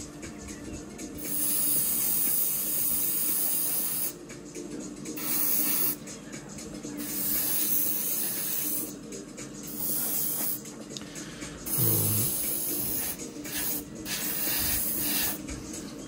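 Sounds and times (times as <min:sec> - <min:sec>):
spray paint hissing: 0:01.2 - 0:04.2, 0:05.2 - 0:06.0, 0:07.0 - 0:08.9, 0:09.7 - 0:10.6, 0:11.6 - 0:15.4.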